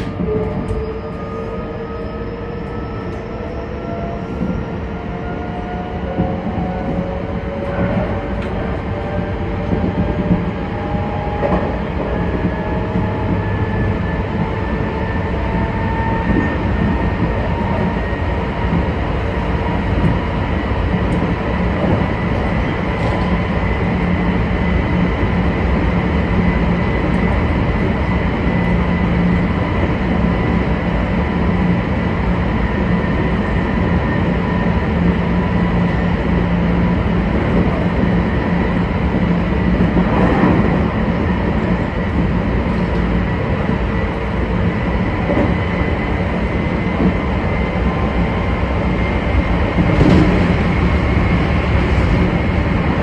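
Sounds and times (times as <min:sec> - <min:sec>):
wheel and rail rumble: 0:00.0 - 0:53.0.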